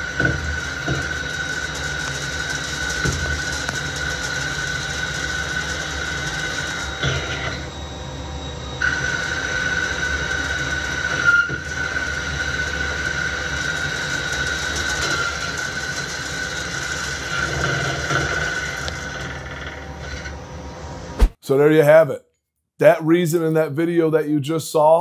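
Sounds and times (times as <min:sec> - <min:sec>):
lathe cutting whine: 0:00.0 - 0:21.1
machine running noise: 0:00.0 - 0:21.4
brief sharp sound: 0:21.2 - 0:21.5.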